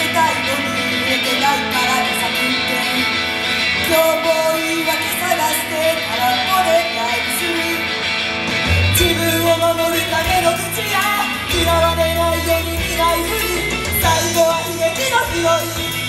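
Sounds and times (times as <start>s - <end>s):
person singing: 0.0s - 16.0s
pop song over loudspeakers: 0.0s - 16.0s
heavy bass line: 8.5s - 16.0s.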